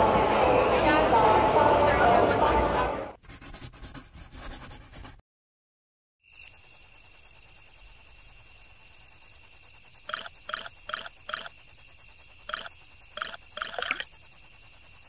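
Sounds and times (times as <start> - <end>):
crickets chirring: 6.2 - 15.0.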